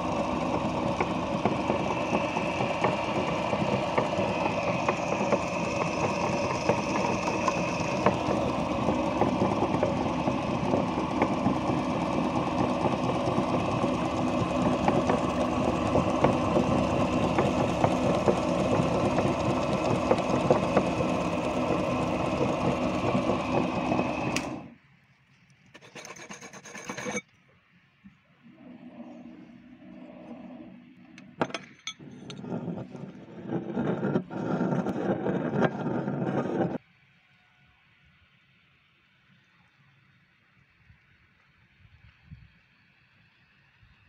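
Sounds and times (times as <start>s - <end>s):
meat grinder grinding soap: 0.0s - 24.7s, 32.4s - 36.8s.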